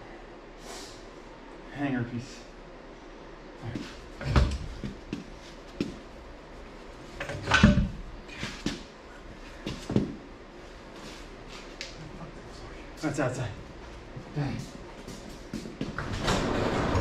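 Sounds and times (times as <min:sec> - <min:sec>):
metallic knocks and clunks: 0:07.2 - 0:08.0.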